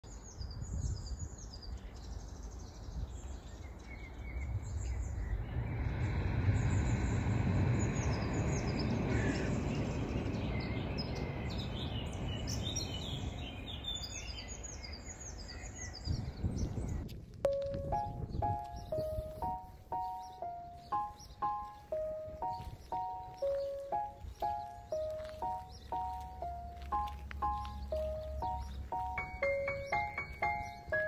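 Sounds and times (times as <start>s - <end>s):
songbirds chirping: 0.0s - 31.0s
steady rushing noise: 4.3s - 13.7s.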